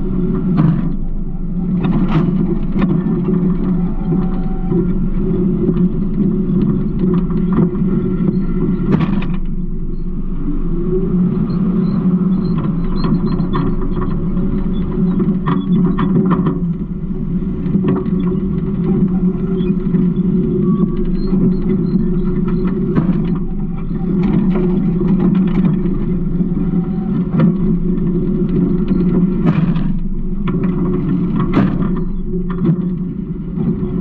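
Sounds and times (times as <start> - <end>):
garbage truck engine rumbling: 19.1 - 34.0
clanks and rattles: 21.0 - 34.0.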